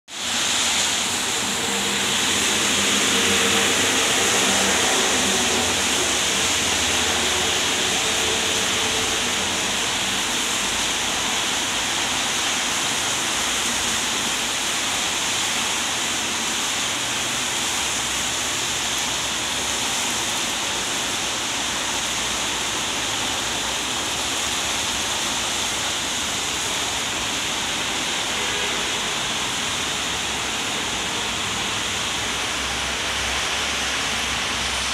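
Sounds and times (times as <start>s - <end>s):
rain falling on street: 0.1s - 34.9s
tyre hiss on wet road: 0.1s - 34.9s
passing vehicles rumble: 0.2s - 14.1s.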